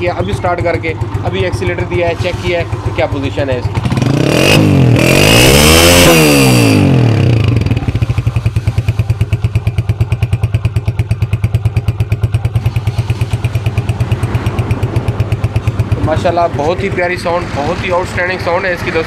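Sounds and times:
motorcycle engine revving and idling: 0.0s - 19.0s.

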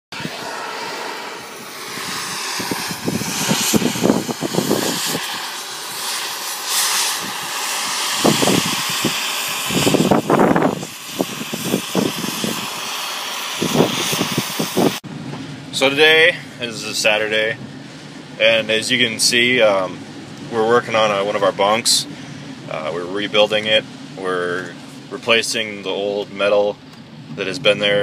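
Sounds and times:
steady hiss: 0.2s - 15.0s.

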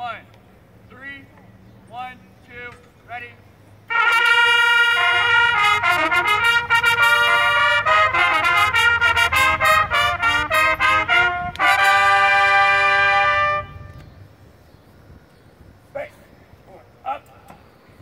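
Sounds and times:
trumpets playing fanfare: 3.9s - 14.0s.

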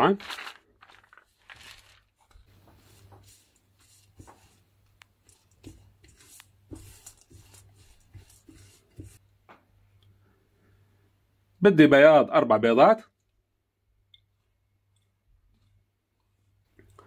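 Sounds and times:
spatula scraping frying pan: 5.4s - 9.2s.

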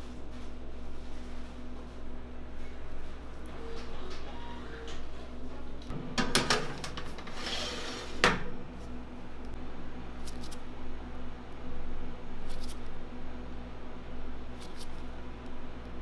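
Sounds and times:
steady low hum: 0.0s - 16.0s
metal baking tray scraping: 6.7s - 8.4s.

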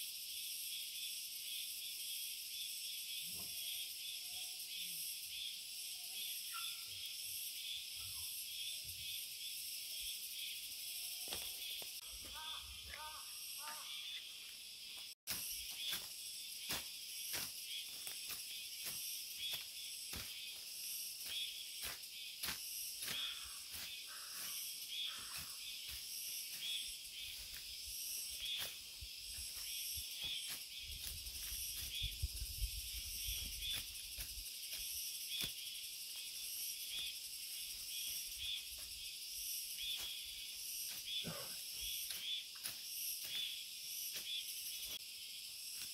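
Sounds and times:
insects buzzing in pulses: 0.0s - 45.9s
undergrowth being cut by hand: 14.5s - 45.9s.

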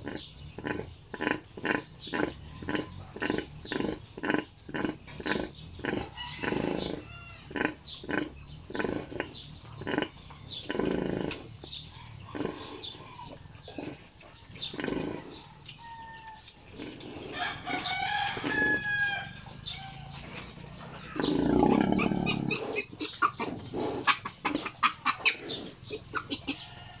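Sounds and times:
sow grunting: 0.0s - 11.5s, 12.1s - 14.1s, 16.7s - 26.6s
rooster crowing: 6.1s - 7.5s, 17.3s - 20.2s, 26.6s - 27.0s.

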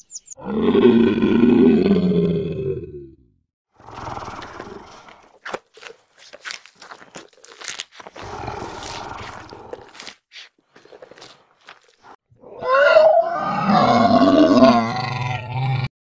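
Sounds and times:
dinosaur roar: 0.4s - 3.2s, 3.8s - 5.3s, 8.2s - 10.1s, 12.4s - 15.9s.

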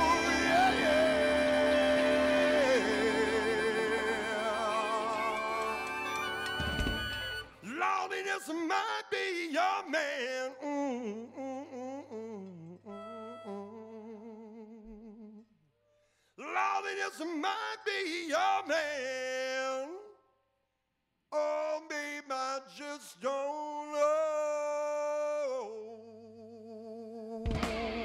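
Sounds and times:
solo blues-rock melodic line: 0.0s - 4.5s.

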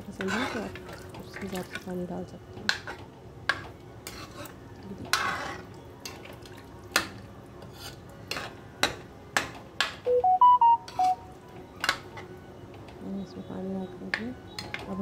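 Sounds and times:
electronic beeps: 10.1s - 11.3s.

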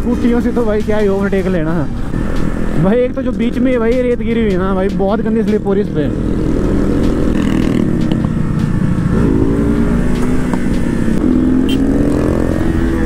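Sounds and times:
motorcycle engine revving: 5.0s - 13.0s.

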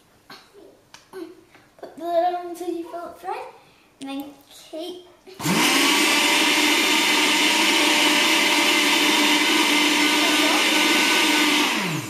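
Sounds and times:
blender running: 5.4s - 12.0s.

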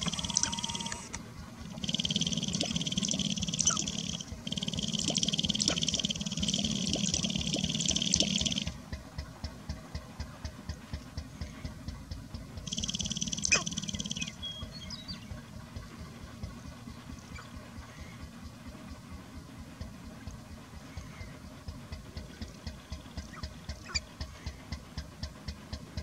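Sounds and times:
separate clicks: 0.0s - 8.8s
grouse feathers buzzing rattle: 0.0s - 14.4s, 15.4s - 26.0s.

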